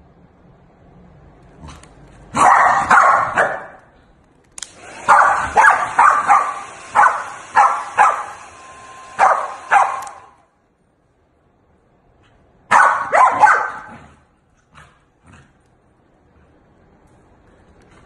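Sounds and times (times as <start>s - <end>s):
dog barking: 2.3s - 3.9s, 5.0s - 8.4s, 9.2s - 10.4s, 12.7s - 14.2s
hair dryer hissing: 4.6s - 10.4s.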